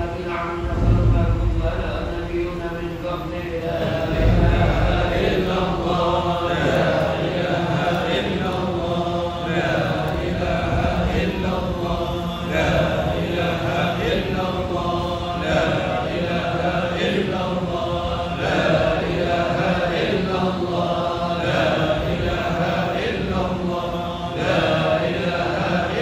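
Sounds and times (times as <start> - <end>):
congregation chanting in unison: 0.0 - 26.0.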